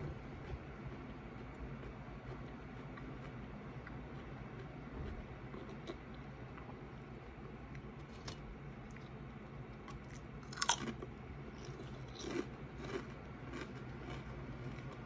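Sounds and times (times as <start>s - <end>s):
crunchy chip bite and chewing: 7.8s - 9.2s, 9.8s - 15.0s.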